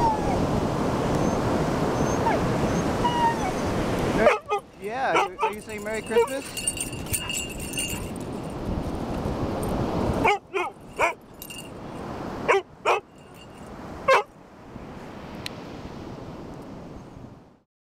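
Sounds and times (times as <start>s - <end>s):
wind on microphone: 0.0s - 12.6s
dog barking: 4.2s - 6.4s, 10.2s - 11.2s, 12.4s - 13.1s, 14.1s - 14.3s.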